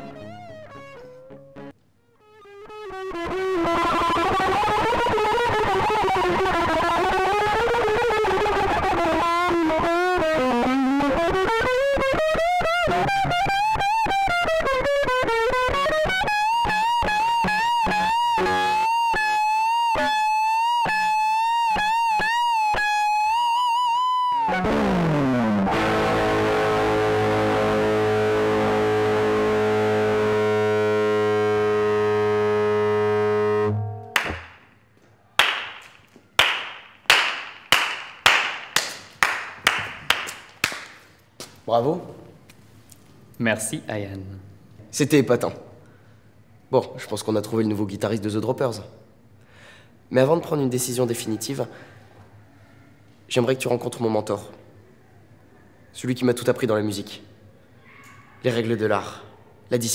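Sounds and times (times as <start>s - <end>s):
distorted electric guitar solo: 0.0s - 34.6s
person clapping slowly: 34.2s - 34.6s, 35.4s - 41.0s.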